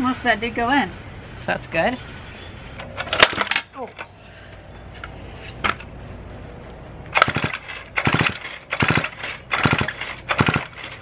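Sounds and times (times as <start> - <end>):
chainsaw engine turning over: 7.1 - 11.0
chainsaw recoil starter pulls: 7.2 - 11.0.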